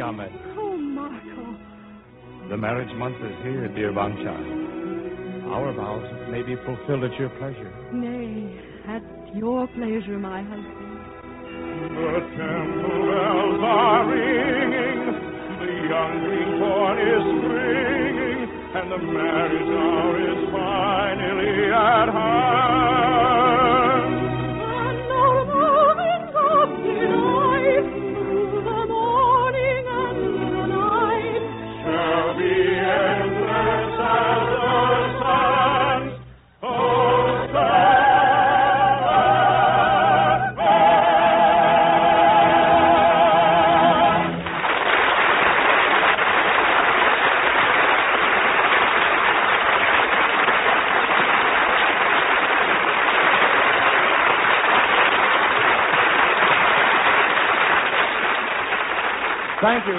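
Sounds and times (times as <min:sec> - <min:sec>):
orchestra playing: 0:00.0 - 0:44.8
solo voices singing: 0:11.7 - 0:44.4
choir singing: 0:11.9 - 0:44.4
audience applause: 0:44.2 - 0:59.9.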